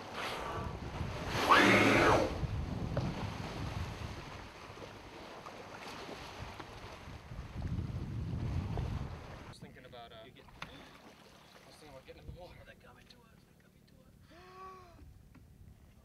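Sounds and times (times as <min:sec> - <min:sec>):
whale blowing breathy whoosh: 0:00.0 - 0:02.5
wind on microphone: 0:00.0 - 0:04.8, 0:06.3 - 0:09.6.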